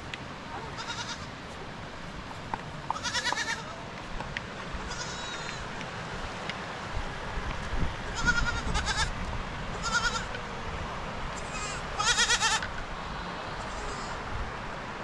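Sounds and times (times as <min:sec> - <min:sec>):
goats bleating: 0:00.7 - 0:01.3, 0:02.9 - 0:03.8, 0:04.9 - 0:05.7, 0:08.2 - 0:09.1, 0:09.8 - 0:10.3, 0:11.4 - 0:12.6, 0:13.6 - 0:14.2.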